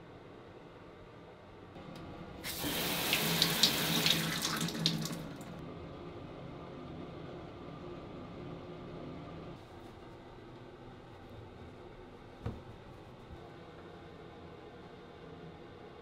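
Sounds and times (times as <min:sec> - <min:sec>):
shower head spraying water: 0:02.4 - 0:05.5.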